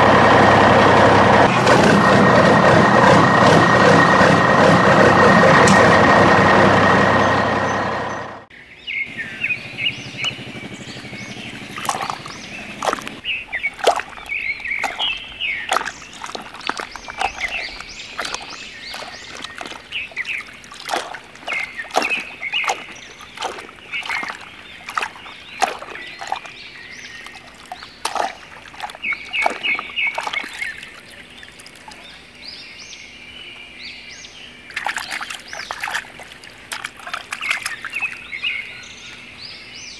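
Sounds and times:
loud engine-like sound: 0.0s - 13.2s, 15.7s - 31.9s
birds chirping: 7.0s - 39.9s
muddy water splashing: 9.1s - 32.8s, 34.4s - 39.8s.

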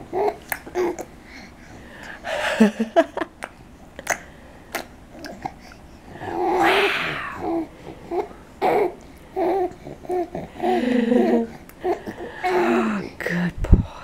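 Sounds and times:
baby cooing: 6.2s - 13.2s
baby squealing: 6.4s - 7.6s.

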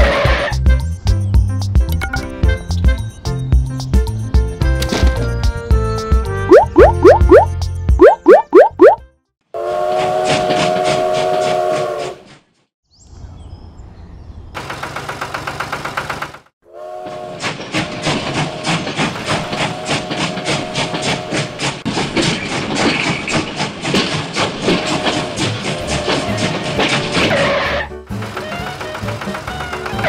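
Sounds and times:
steam train whistle: 9.5s - 12.3s, 16.6s - 21.8s, 24.6s - 27.8s
steam locomotive chuffing: 9.6s - 12.3s, 14.6s - 30.0s.

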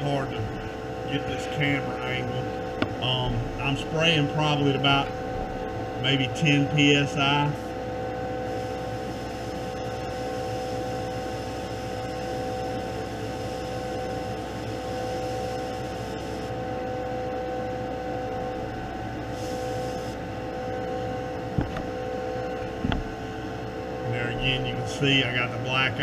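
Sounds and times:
exhaust fan humming: 0.0s - 26.0s
airbrush hissing: 8.5s - 16.5s, 19.3s - 20.2s.

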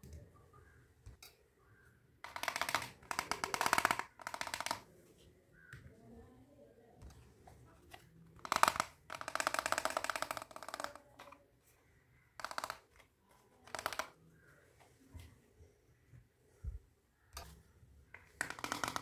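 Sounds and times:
plastic toy pieces clicking: 2.2s - 4.9s, 8.4s - 11.4s, 12.3s - 14.2s, 17.4s - 19.0s.

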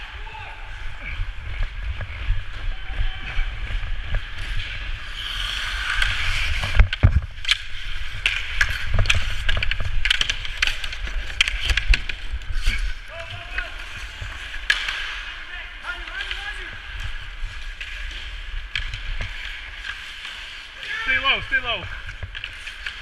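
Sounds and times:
skates scraping on ice: 0.2s - 23.0s
stick clacking on puck: 5.2s - 12.8s.

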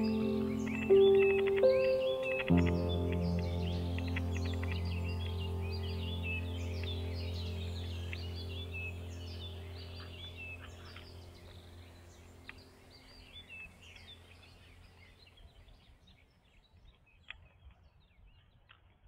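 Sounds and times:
sharp clicks: 0.0s - 5.5s
low steady drone: 0.0s - 15.3s
birds chirping: 0.0s - 19.0s.

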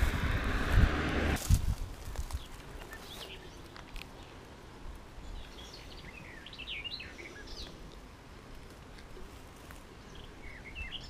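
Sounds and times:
outdoor background hiss: 0.0s - 11.0s
small birds chirping: 2.3s - 11.0s.

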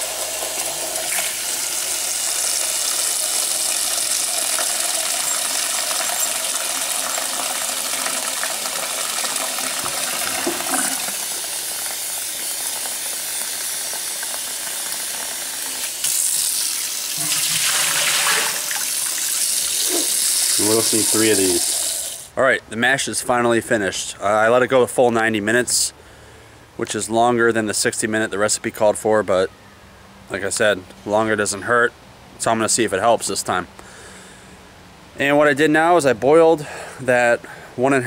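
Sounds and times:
water pouring into metal pot: 0.0s - 22.3s
tap water splashing into cup: 9.2s - 11.2s.

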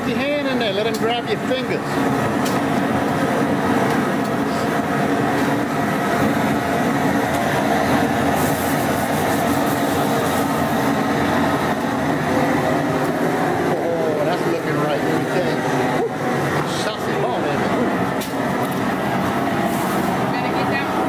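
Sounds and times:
steady rumbling hum: 0.0s - 21.0s
hose nozzle spraying water: 8.4s - 10.6s.

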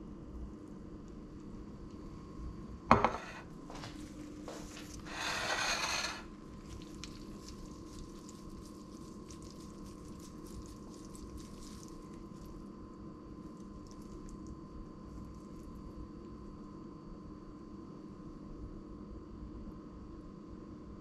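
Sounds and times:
plate set down on countertop: 2.9s - 3.4s
fork scraping a plate: 5.0s - 6.3s.

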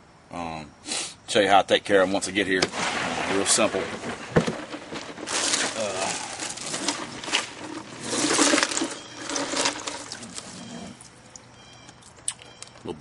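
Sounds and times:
hands rummaging in fish cooler: 2.2s - 11.2s.

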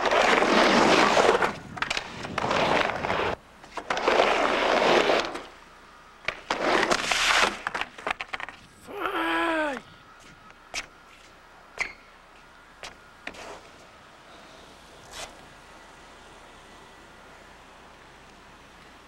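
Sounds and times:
skateboard wheels rolling on wood: 0.0s - 5.6s, 6.2s - 9.2s, 10.2s - 15.6s.

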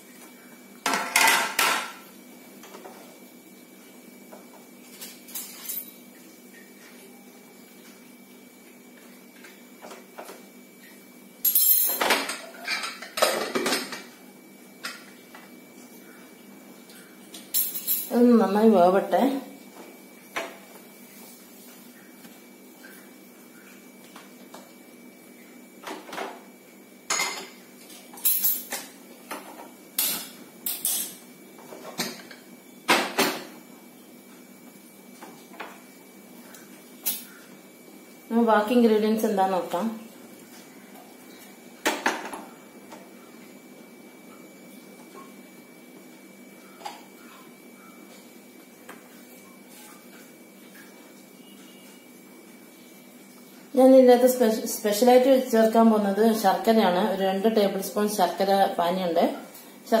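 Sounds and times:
dishes and utensils clinking: 11.4s - 14.1s, 17.4s - 18.1s, 27.1s - 31.2s.

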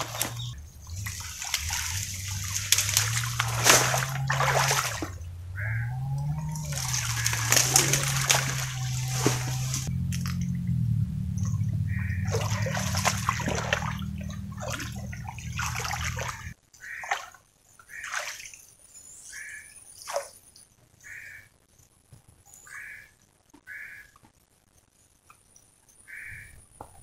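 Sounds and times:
hands splashing in water: 0.0s - 10.5s, 12.2s - 17.4s
low steady hum: 0.0s - 16.6s.

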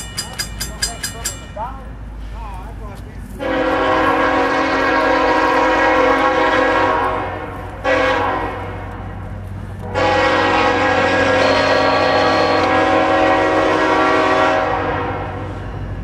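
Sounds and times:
locomotive air horn blasts: 3.4s - 9.1s, 9.8s - 15.6s.

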